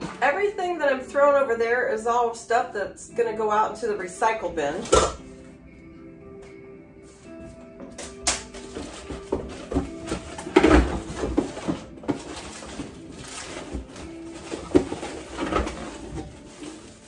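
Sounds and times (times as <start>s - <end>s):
packaging rustling and crinkling: 8.1s - 17.0s.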